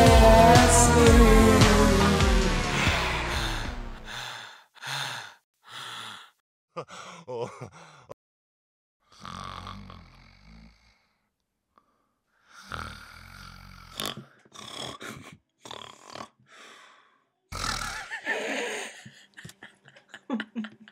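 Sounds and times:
person snoring: 0.0s - 6.4s, 9.1s - 11.2s, 12.5s - 19.0s.

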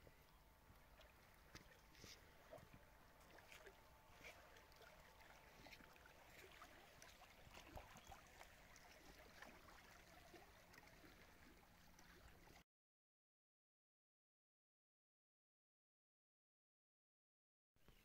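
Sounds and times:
lake water lapping on rocks: 0.6s - 12.6s.

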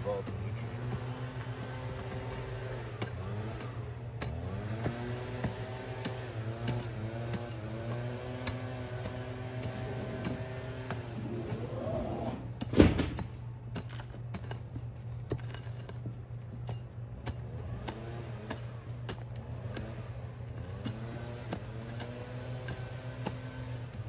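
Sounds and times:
mattock striking dirt: 0.0s - 24.0s.

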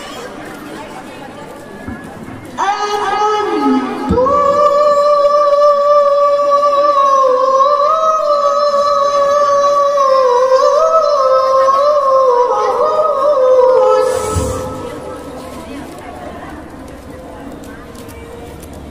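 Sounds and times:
child reciting in melodious voice: 2.6s - 15.4s.

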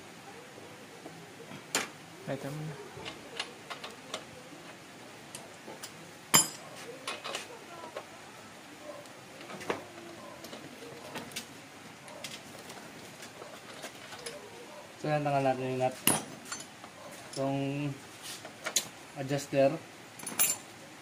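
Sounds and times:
metal tools clinking on metal: 5.4s - 7.4s, 13.4s - 14.5s, 16.0s - 17.5s, 20.2s - 20.7s.

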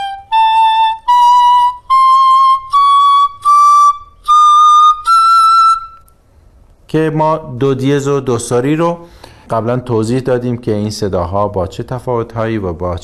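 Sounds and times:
reed flute playing ascending scale: 0.0s - 6.2s.

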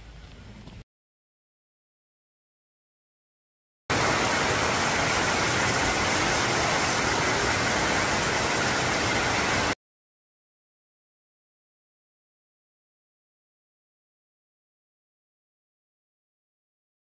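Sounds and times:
waterfall rushing: 3.9s - 9.8s.

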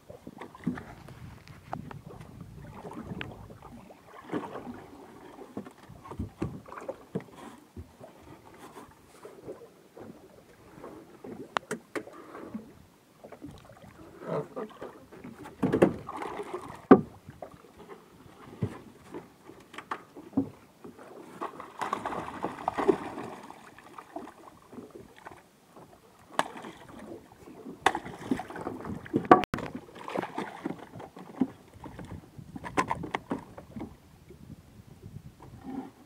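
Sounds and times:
water splashing against a boat: 0.0s - 36.0s
fish thrashing at the surface: 21.5s - 23.9s.

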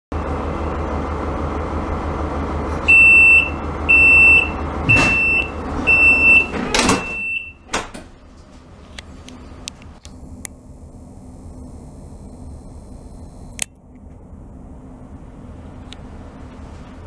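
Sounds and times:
low train hum: 0.1s - 17.0s
train door closing: 2.8s - 8.7s
high-pitched warning beeps: 2.9s - 7.7s
door thump: 4.8s - 5.4s, 6.5s - 8.2s.

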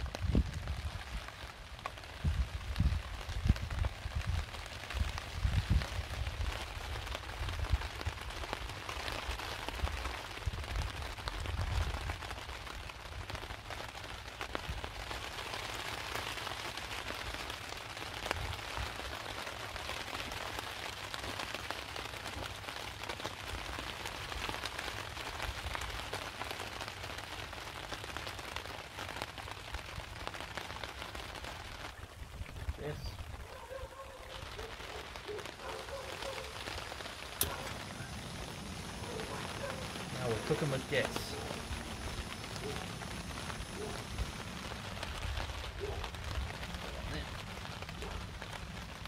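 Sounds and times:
heavy rain on a tarp: 0.0s - 49.0s
low rumbling: 37.2s - 45.6s.

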